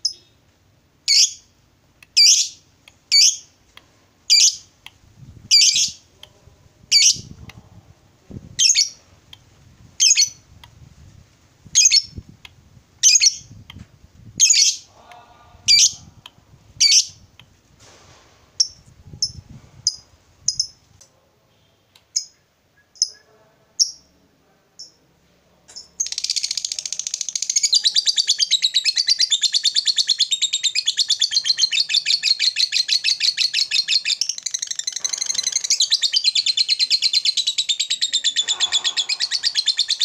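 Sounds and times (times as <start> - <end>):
lovebird calling: 2.2 - 3.5, 5.5 - 6.0, 10.0 - 10.4, 14.4 - 14.9, 16.8 - 17.2, 26.0 - 40.0.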